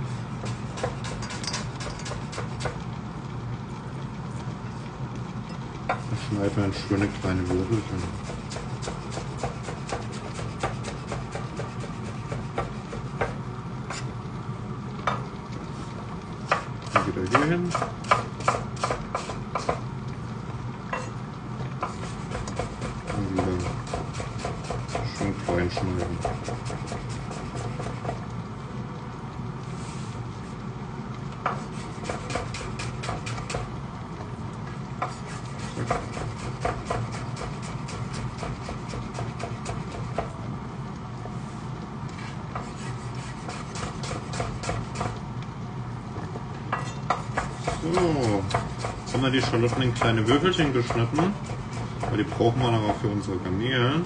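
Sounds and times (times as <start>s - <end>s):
steady low hum: 0.0s - 54.0s
knife chopping on cutting board: 0.4s - 2.8s, 7.4s - 14.0s, 16.5s - 19.8s, 21.8s - 28.2s, 31.4s - 33.7s, 35.0s - 40.3s, 42.6s - 45.2s, 46.8s - 53.0s.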